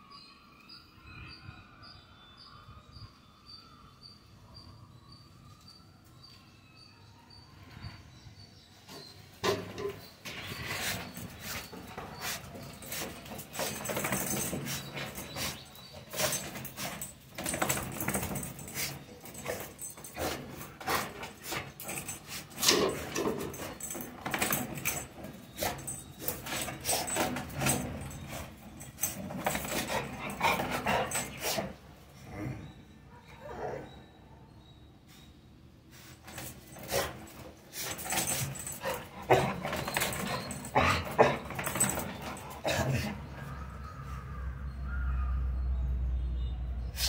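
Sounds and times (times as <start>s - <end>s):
sharp clicks and rattles: 9.4s - 31.4s, 36.3s - 42.9s
dog whining and barking: 37.8s - 43.4s.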